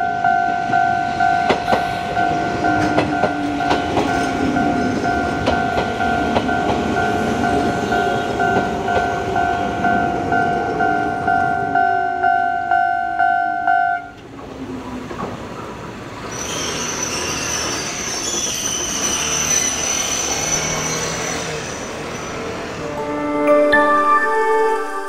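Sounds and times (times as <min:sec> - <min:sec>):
train wheels clacking on rails: 0:00.1 - 0:12.0, 0:14.1 - 0:22.6
hiss: 0:16.2 - 0:22.1
high steady tone: 0:22.8 - 0:25.0.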